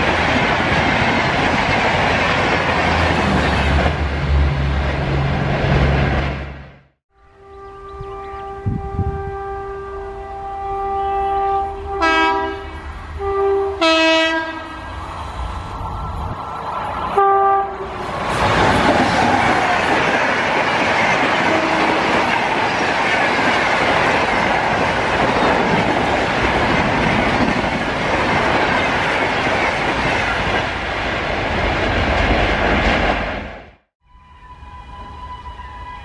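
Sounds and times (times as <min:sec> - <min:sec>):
train wheels rushing on rail: 0:00.0 - 0:06.8, 0:11.7 - 0:33.8
train horn blast: 0:07.2 - 0:14.9, 0:17.1 - 0:18.1, 0:21.4 - 0:22.4, 0:34.0 - 0:36.0.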